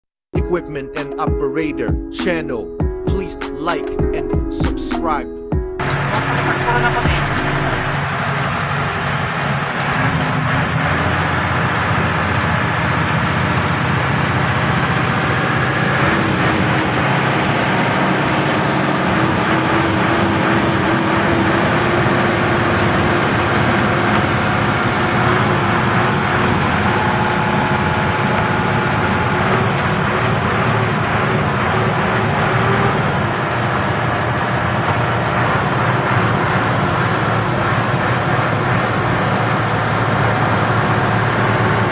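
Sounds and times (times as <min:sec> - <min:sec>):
diesel engine running: 0:00.3 - 0:41.9.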